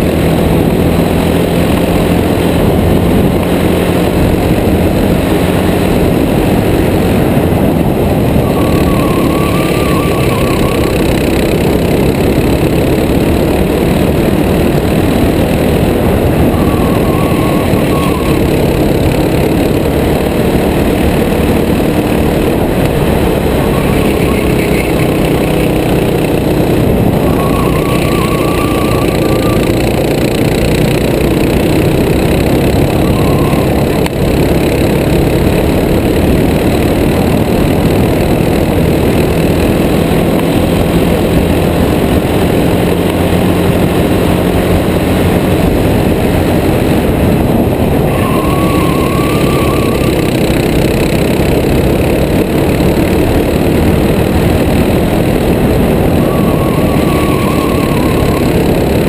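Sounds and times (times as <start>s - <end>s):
kart engine at speed: 0.0s - 59.0s
wind noise: 0.0s - 59.0s
short wavering whine: 8.2s - 13.5s, 15.2s - 20.2s, 22.6s - 34.8s, 47.9s - 51.0s, 55.7s - 59.0s.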